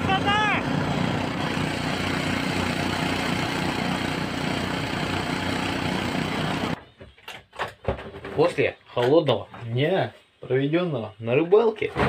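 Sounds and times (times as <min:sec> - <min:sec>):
vehicle engine running: 0:00.0 - 0:06.8.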